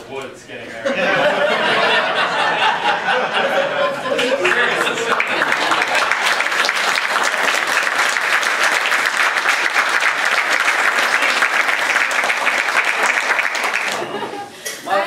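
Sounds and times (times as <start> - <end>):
people applauding: 4.0 - 14.4.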